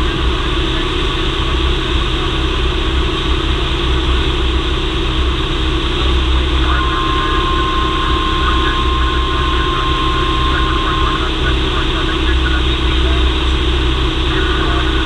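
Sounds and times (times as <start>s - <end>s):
propeller plane engine droning: 0.0s - 15.0s
steady high tone: 6.0s - 15.0s.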